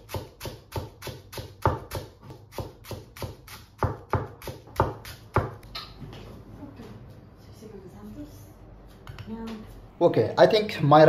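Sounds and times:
knife chopping on cutting board: 0.0 - 5.6.

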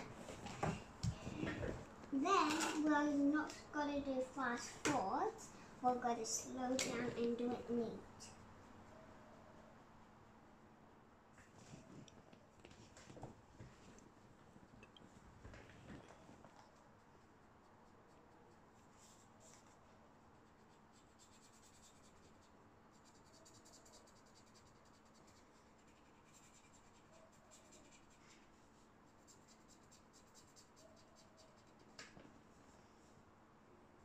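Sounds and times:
marker scratching on paper: 16.7 - 32.0.

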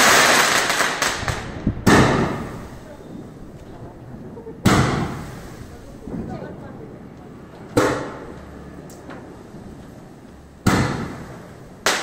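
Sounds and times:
firework sparks crackling: 0.0 - 6.3, 8.9 - 12.0
firework bangs: 0.0 - 6.6, 7.7 - 8.4, 9.3 - 12.0.

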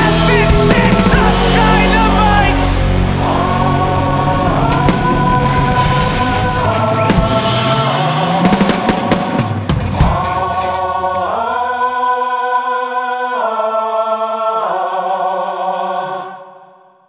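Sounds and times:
drum hits: 0.0 - 2.8, 4.6 - 11.3
sustained sung chords: 0.0 - 17.0.

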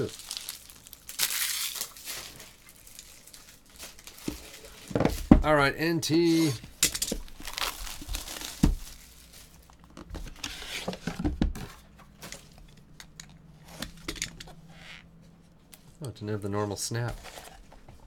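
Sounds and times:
cardboard box rustling and scraping: 17.1 - 17.9.

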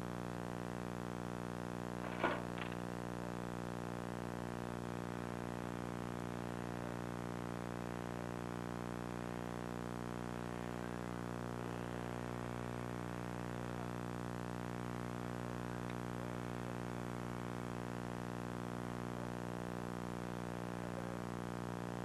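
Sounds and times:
electrical hum: 0.0 - 22.0.

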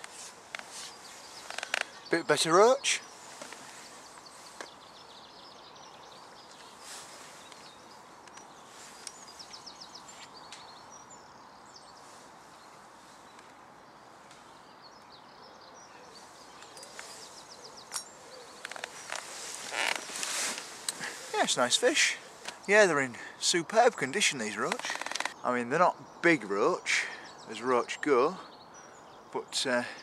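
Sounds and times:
small birds trilling and chirping: 0.0 - 30.0
steady outdoor hiss: 0.0 - 30.0
sharp clicks: 24.7 - 25.4.

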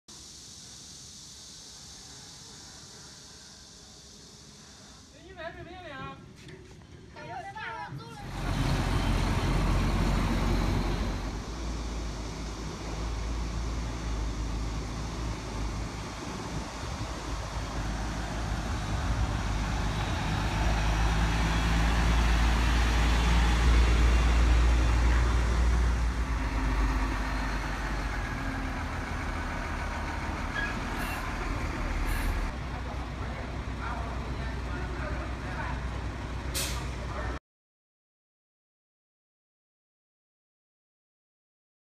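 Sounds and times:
tyre and road noise: 5.0 - 37.4
diesel truck engine rumble: 8.0 - 37.4.

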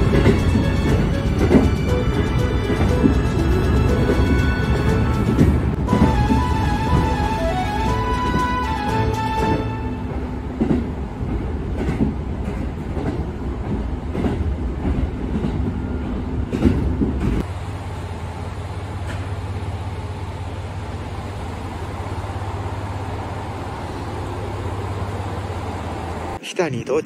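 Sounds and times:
train wheels clicking over rail joints: 0.0 - 6.2, 10.5 - 17.4
diesel railcar running: 0.0 - 26.4.

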